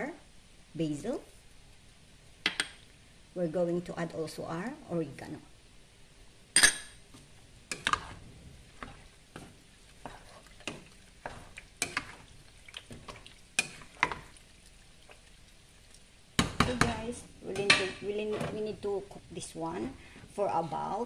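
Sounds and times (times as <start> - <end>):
wooden spoon knocking a pot: 16.4 - 18.1.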